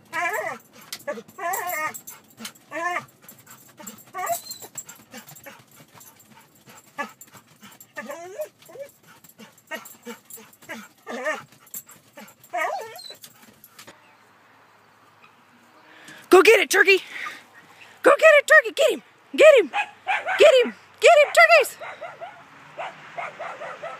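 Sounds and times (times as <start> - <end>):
dog whining and yipping: 0.0 - 13.8.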